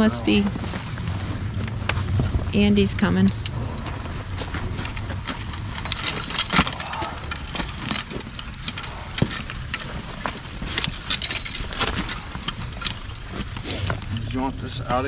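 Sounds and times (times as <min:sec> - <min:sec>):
harness hardware clicking: 0:00.0 - 0:15.0
low steady rumble: 0:00.0 - 0:15.0.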